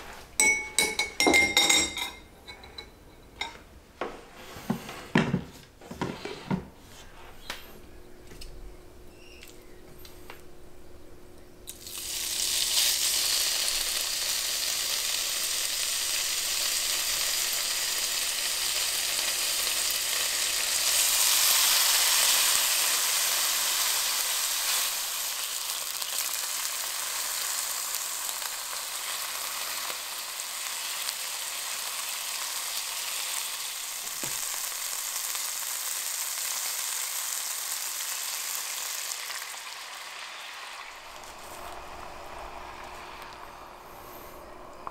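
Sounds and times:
beef sizzling in pan: 11.7 - 43.5.

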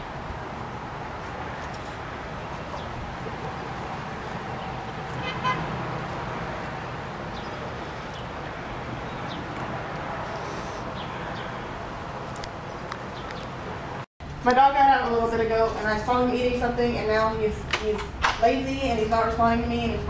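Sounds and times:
traffic hum: 0.0 - 20.0
car horn toot: 5.2 - 5.7.

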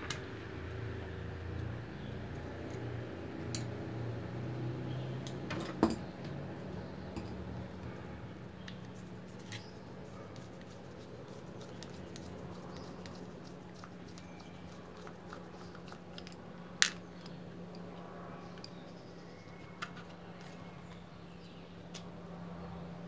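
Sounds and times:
steady low hum: 0.0 - 23.0
screwdriver ticks and scrapes: 10.4 - 16.4.

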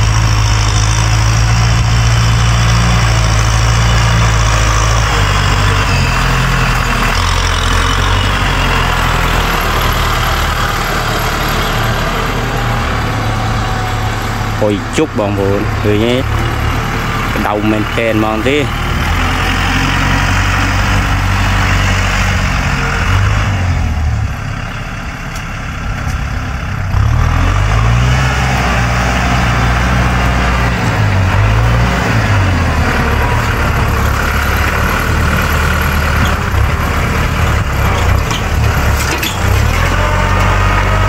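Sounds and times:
tractor engine under load: 0.0 - 41.0.

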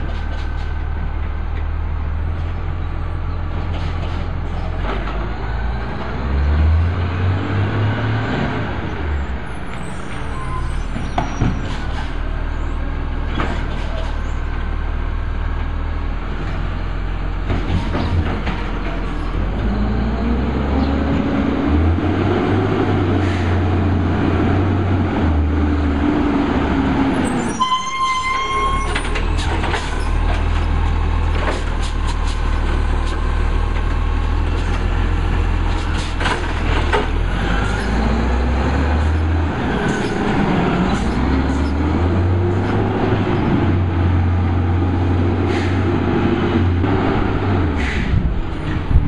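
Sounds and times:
garbage truck engine revving: 3.5 - 9.2, 14.8 - 27.5, 29.0 - 49.0
short high squeal: 9.7 - 11.8, 27.2 - 29.2.

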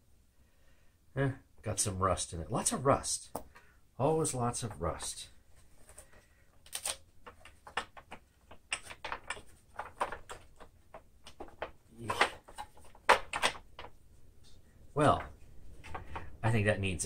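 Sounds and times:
plastic clicks and knocks: 7.2 - 14.0.

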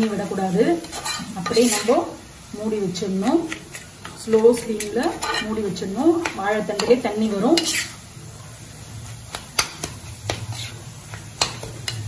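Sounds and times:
metal spatula scraping iron pan: 0.8 - 2.0, 3.6 - 5.7, 6.8 - 8.0, 10.3 - 12.0.

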